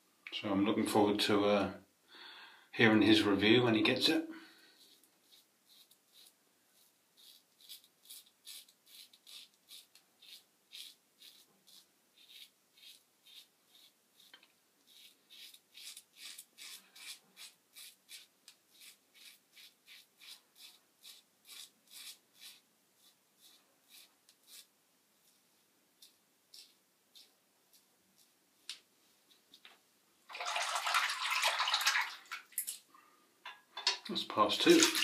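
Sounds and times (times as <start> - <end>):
razor scraping lathered stubble: 4.8 - 25.4, 26.0 - 28.4.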